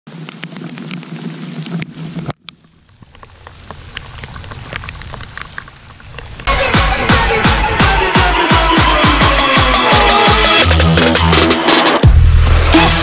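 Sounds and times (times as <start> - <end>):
raindrops striking close by: 0.1 - 6.5
steady rain: 0.1 - 6.5.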